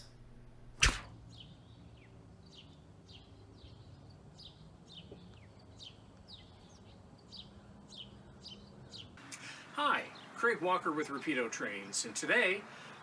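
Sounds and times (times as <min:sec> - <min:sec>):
sharp knock: 0:00.8 - 0:01.1
small bird chirping: 0:01.2 - 0:10.4.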